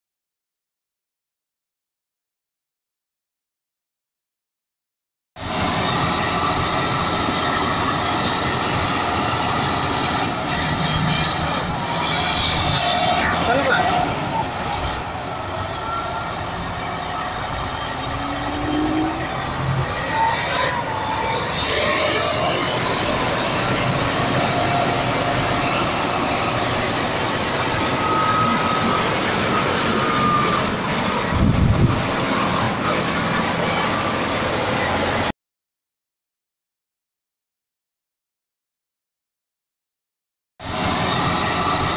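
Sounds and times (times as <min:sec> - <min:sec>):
bulldozer diesel engine running: 0:05.4 - 0:35.3, 0:40.6 - 0:41.9.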